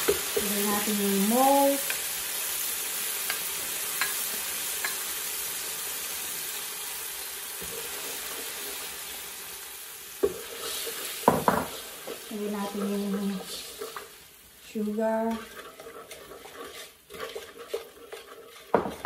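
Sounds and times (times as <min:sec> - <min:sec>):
sauce sizzling in hot oil: 0:00.0 - 0:19.0
spoon knocking against pan: 0:11.2 - 0:11.8, 0:18.7 - 0:19.0.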